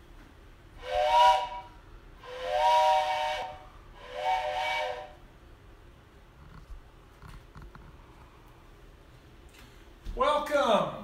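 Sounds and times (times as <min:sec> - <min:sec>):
train whistle chord: 0:00.8 - 0:05.3.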